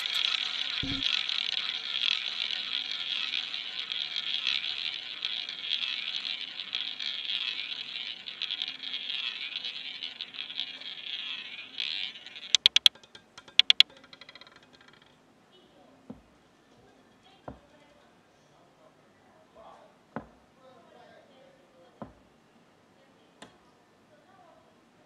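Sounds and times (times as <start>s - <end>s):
roulette ball rolling whirr: 0.0s - 15.1s.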